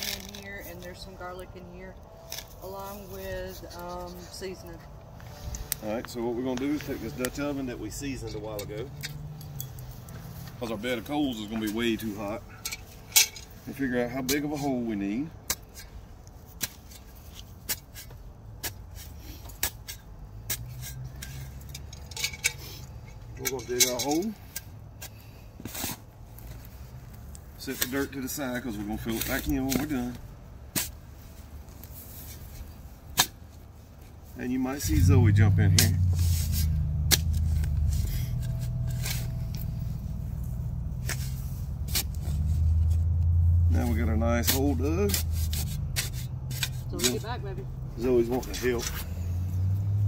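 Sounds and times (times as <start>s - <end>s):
steady low rumble: 34.8s - 50.0s
shovel crunching into dirt: 34.9s - 39.6s.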